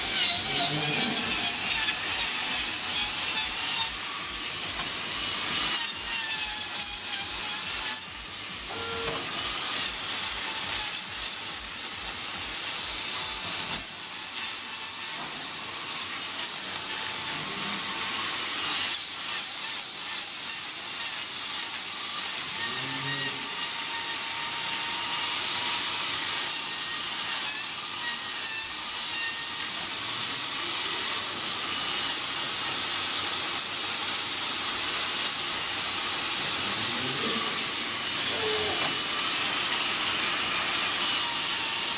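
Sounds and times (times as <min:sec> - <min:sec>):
angle grinder grinding hoof: 0:00.0 - 0:41.9.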